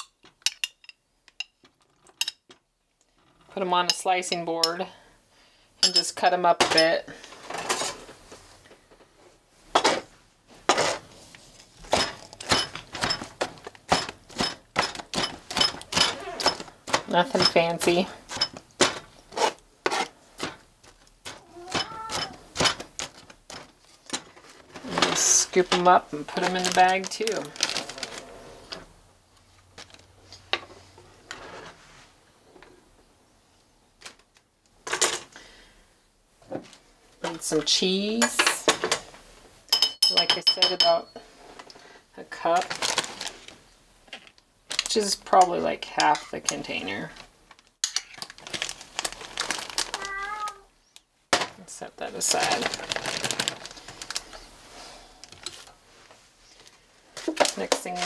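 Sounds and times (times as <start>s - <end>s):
plastic bag rustling: 9.6s - 30.3s, 42.6s - 43.8s, 46.7s - 50.6s, 52.0s - 58.0s
knife scraping cutting board: 19.3s - 20.2s.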